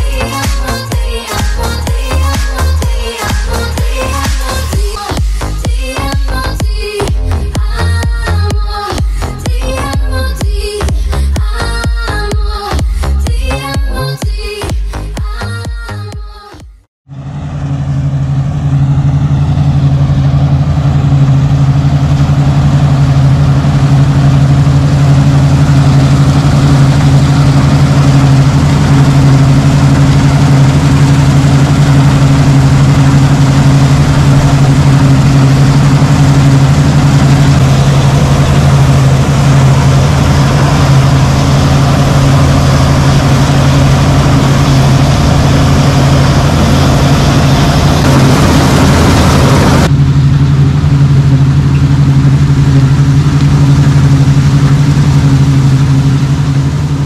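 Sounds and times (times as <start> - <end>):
threshing machinery rushing: 17.1 - 50.4
combine harvester engine hum: 17.1 - 57.0.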